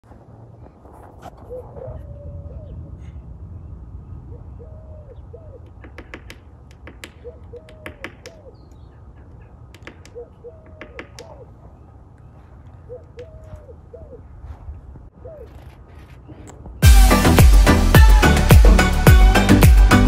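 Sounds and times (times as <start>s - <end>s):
dove cooing: 1.4s - 3.2s, 4.3s - 6.3s, 7.0s - 11.8s, 12.4s - 14.4s, 15.1s - 15.8s
bird pecking wood: 5.6s - 11.6s.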